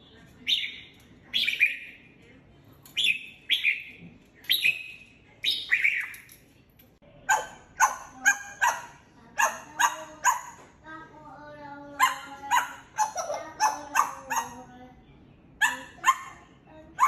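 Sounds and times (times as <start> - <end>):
parrot whistling birdsong: 0.4 - 2.0, 3.0 - 6.3
parrot imitating dog barks: 7.3 - 10.6, 12.0 - 14.7, 15.6 - 17.0.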